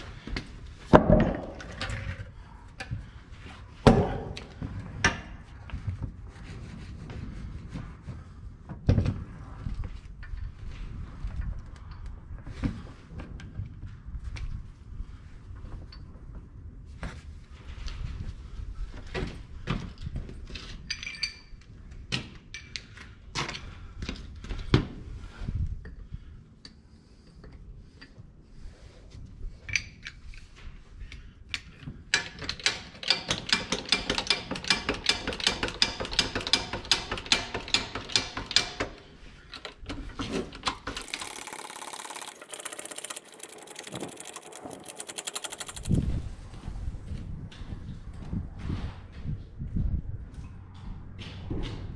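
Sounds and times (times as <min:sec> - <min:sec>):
hydraulic jack clicking: 0:32.2 - 0:39.0, 0:40.6 - 0:46.1
fast thin ticking: 0:40.9 - 0:46.1.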